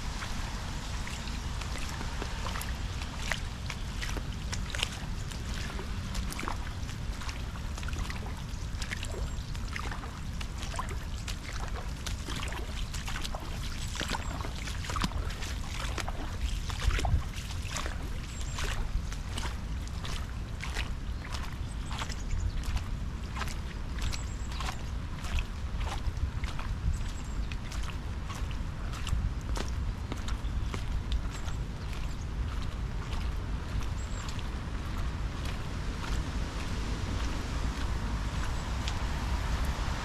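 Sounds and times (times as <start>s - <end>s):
rain drops ticking: 0.0s - 16.9s
low rumble: 32.4s - 40.0s.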